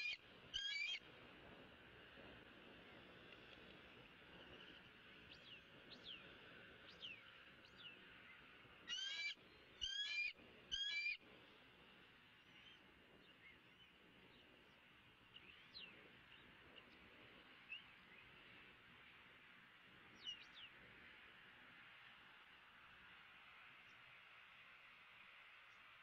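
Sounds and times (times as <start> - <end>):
faint small bird chirps: 0.0 - 1.0, 6.9 - 11.2
loud wavering bird calls: 0.0 - 1.0, 8.9 - 11.2.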